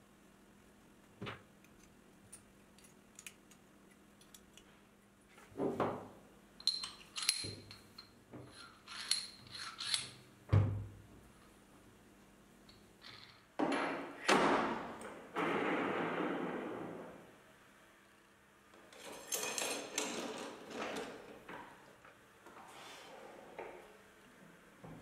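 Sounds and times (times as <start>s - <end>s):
metal parts clinking and scraping: 6.6s - 10.2s, 18.9s - 20.8s.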